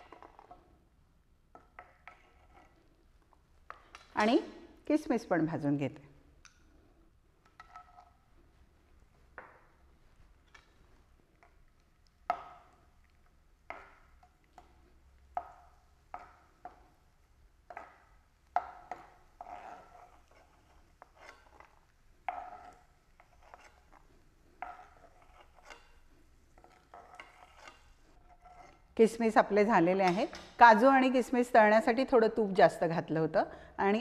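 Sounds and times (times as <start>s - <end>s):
metal spoon scraping metal pan: 18.9s - 24.1s, 24.7s - 26.0s, 26.6s - 28.9s.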